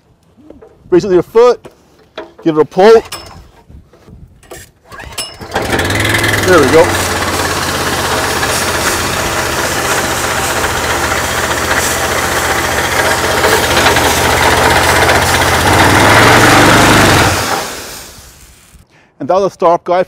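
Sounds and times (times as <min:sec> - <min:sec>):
pressure washer engine running: 0:05.4 - 0:18.4
spray gun discharging water: 0:05.5 - 0:18.8.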